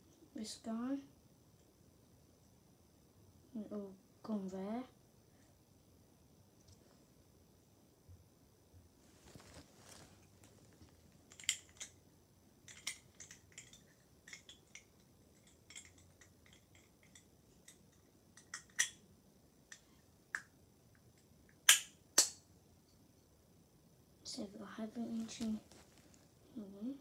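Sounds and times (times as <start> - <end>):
plastic toy parts clicking: 11.3 - 12.0, 12.7 - 19.0.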